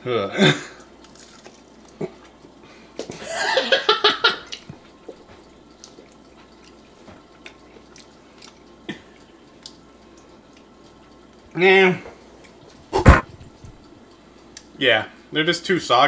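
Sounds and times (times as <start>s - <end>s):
mouth clicks and chewing: 0.8s - 2.4s, 4.4s - 11.4s.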